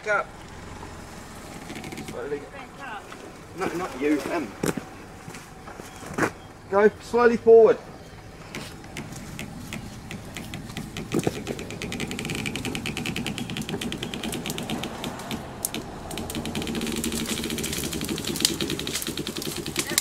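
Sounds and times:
fast ticking clatter: 0:00.0 - 0:02.6, 0:08.5 - 0:20.0
car engine at low revs: 0:00.0 - 0:20.0.

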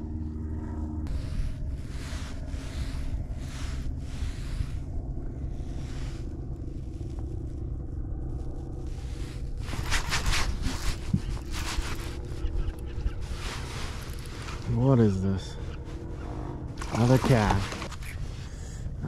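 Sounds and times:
wind rumble on microphone: 0:00.0 - 0:19.0
rod scraping and clicking: 0:09.6 - 0:14.8.

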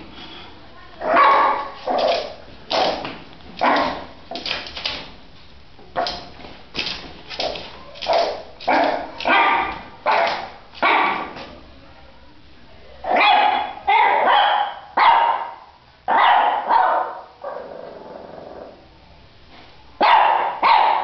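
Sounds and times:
small dog barking: 0:01.0 - 0:02.3, 0:03.6 - 0:04.0, 0:08.1 - 0:11.4, 0:13.1 - 0:17.6, 0:20.0 - 0:21.0.

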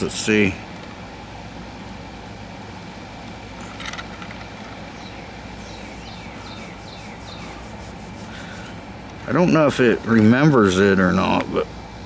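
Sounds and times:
air conditioner humming: 0:00.0 - 0:12.0
bird calling high descending notes: 0:05.0 - 0:07.8.

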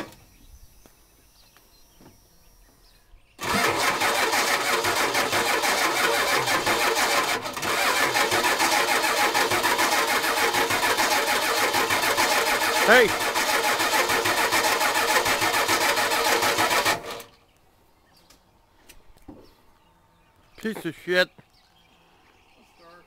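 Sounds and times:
starter cranking engine: 0:03.4 - 0:17.3.

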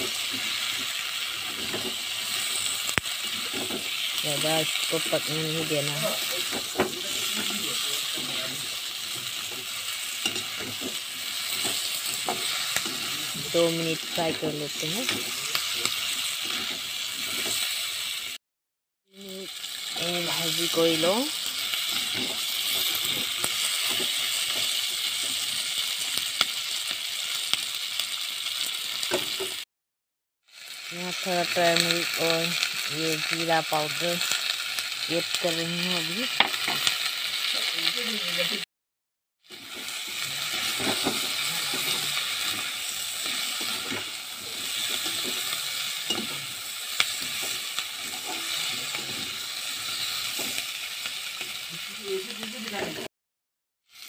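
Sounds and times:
metal spatula scraping a wok: 0:00.0 - 0:17.9, 0:20.2 - 0:25.5, 0:39.5 - 0:50.7
vegetables sizzling in oil: 0:00.0 - 0:18.4, 0:19.1 - 0:29.6, 0:30.5 - 0:38.6, 0:39.4 - 0:53.1.

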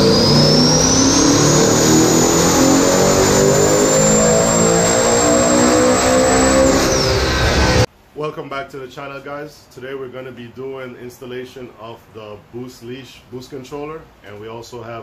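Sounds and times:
car engine running hard: 0:00.0 - 0:07.9
high turbo whine: 0:00.0 - 0:07.9.

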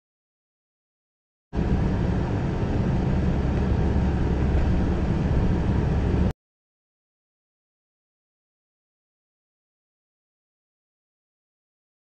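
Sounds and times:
car road and engine rumble: 0:01.6 - 0:06.3.

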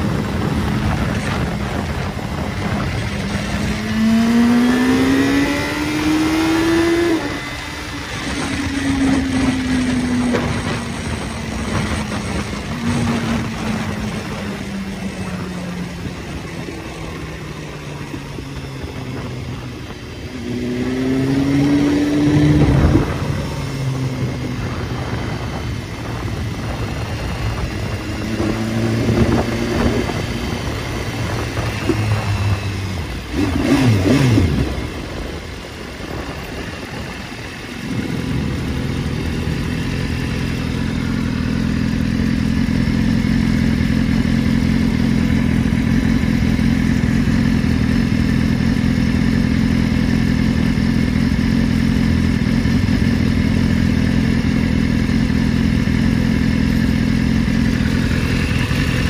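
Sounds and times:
motorcycle engine revving and idling: 0:00.0 - 0:59.0.

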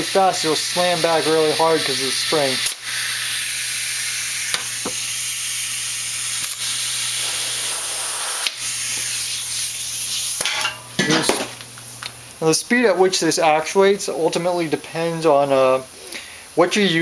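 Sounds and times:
compressed air hissing: 0:00.0 - 0:10.5.

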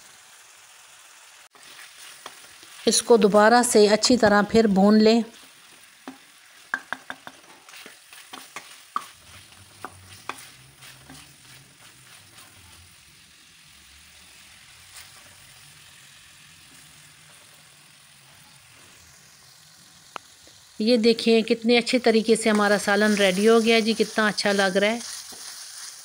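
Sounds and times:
faint frying sizzle: 0:00.0 - 0:26.0
wooden spoon scraping metal pan: 0:06.8 - 0:12.9.

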